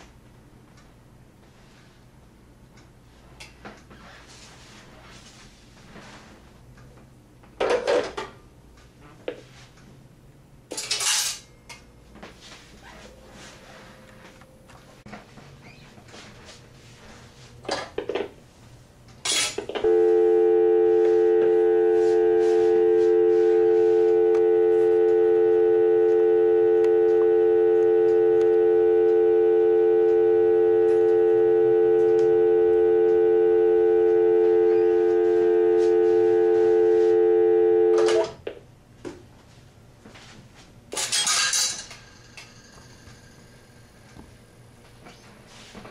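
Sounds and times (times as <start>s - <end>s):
telephone dial tone: 19.8s - 38.4s
telephone line clicks: 23.9s - 37.2s.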